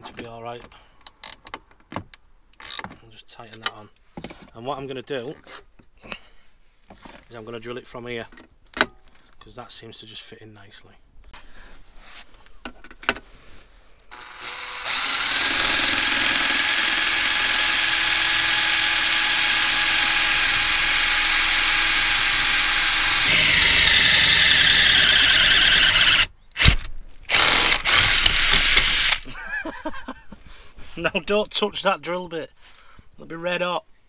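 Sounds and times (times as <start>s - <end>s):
cordless drill whining: 14.1s - 29.3s.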